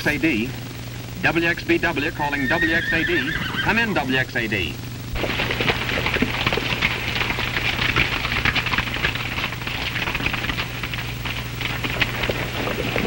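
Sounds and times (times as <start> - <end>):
hooves clattering on stony ground: 5.2 - 13.0.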